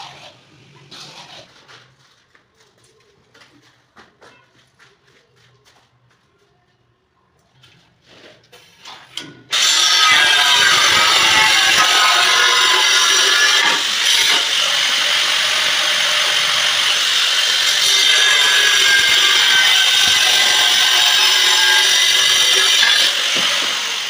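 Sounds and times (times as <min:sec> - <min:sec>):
angle grinder cutting tile: 0:09.5 - 0:24.0.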